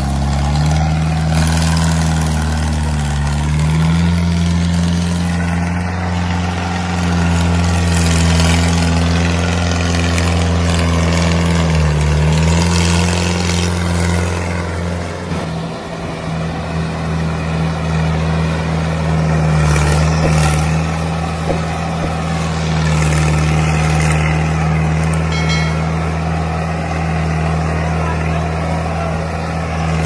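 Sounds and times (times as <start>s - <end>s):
low engine drone: 18.5s - 30.0s.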